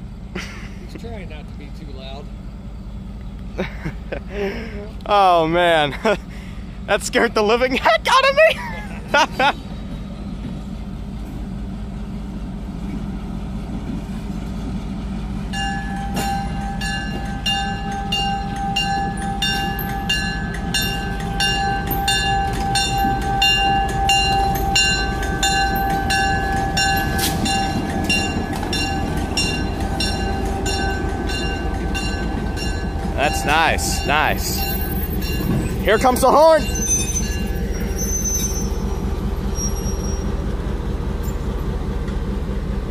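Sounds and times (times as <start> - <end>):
locomotive engine rumbling: 0.0 - 42.9
crossing bell ringing: 15.5 - 40.4.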